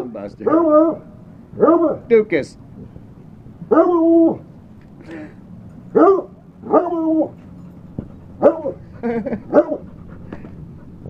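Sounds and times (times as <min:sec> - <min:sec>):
dog barking: 0:00.4 - 0:01.0, 0:01.6 - 0:02.1, 0:06.0 - 0:07.3, 0:08.4 - 0:08.8, 0:09.5 - 0:09.8.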